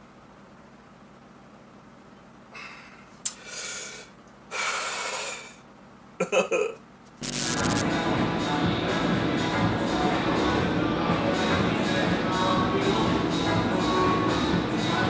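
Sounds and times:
man breathing out heavily: 2.6 - 5.6
music: 7.2 - 15.0.

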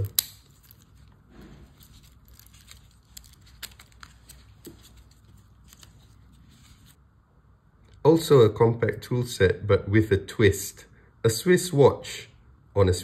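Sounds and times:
gloved hands rustling: 0.0 - 7.0.

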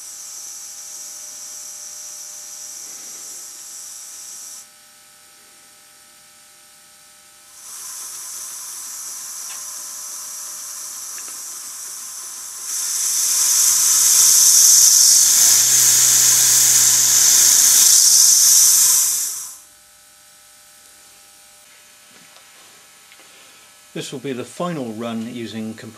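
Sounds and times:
hiss of exhaust air: 0.0 - 4.6, 7.5 - 19.6.

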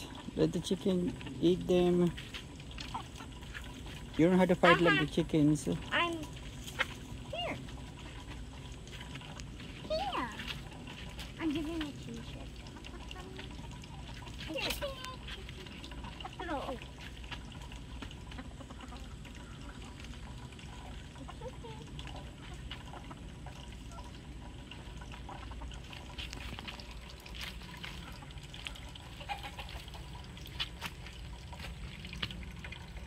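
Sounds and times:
chickens pecking and scratching: 0.0 - 33.0
chickens clucking softly: 18.0 - 26.2, 27.8 - 30.4.

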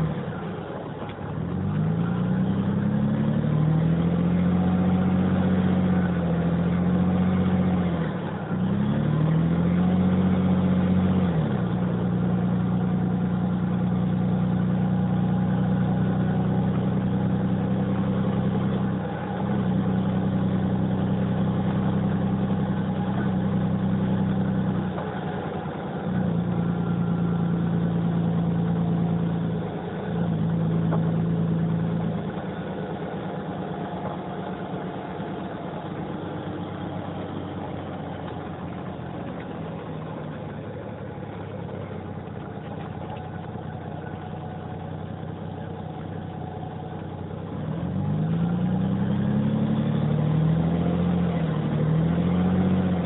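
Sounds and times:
diesel bus engine running: 0.0 - 53.0.

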